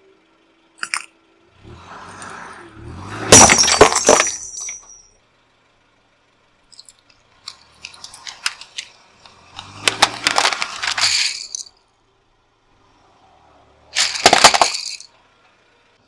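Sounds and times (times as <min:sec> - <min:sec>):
pencils cracking under a tyre: 0:06.8 - 0:11.7, 0:14.0 - 0:15.1.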